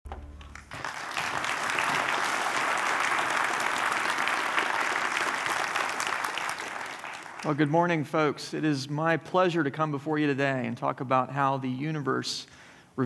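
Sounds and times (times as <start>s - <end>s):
audience applauding: 0.4s - 7.7s.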